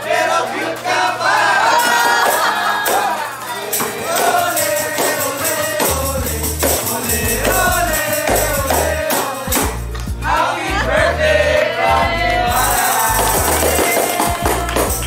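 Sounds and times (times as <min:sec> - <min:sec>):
upbeat music with singing: 0:00.0 - 0:15.0
bass line: 0:05.9 - 0:15.0.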